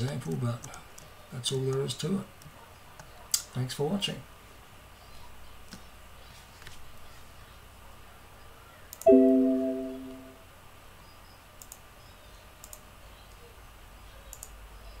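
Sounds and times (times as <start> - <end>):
bell-like chime: 9.1 - 10.4
faint clicks: 11.6 - 11.8, 12.6 - 13.4, 14.3 - 14.6.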